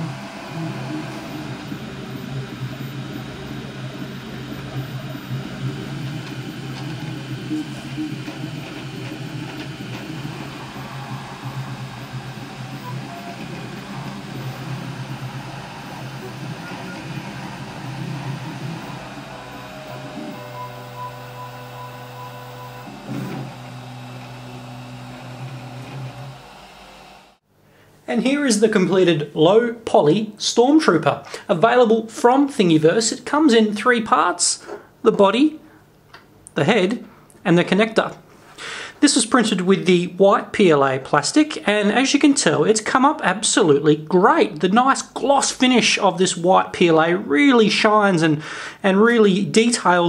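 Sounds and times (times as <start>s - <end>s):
stepper motors humming: 0.0s - 27.4s
fan hiss: 0.0s - 29.6s.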